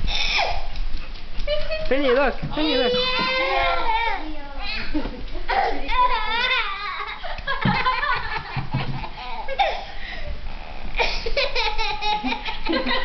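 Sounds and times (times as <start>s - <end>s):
toddler laughing: 4.6s - 9.9s, 11.0s - 13.0s.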